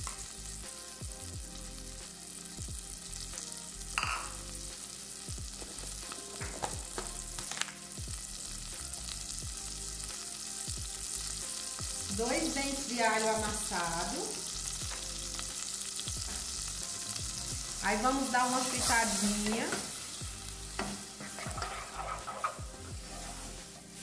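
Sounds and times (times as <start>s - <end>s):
onion sizzling in butter: 0.0s - 24.0s
small crackling pops: 6.0s - 7.8s.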